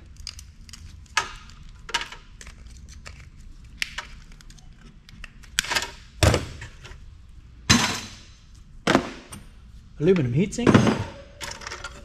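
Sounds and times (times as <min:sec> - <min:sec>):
metal parts clunking: 0:10.7 - 0:12.0.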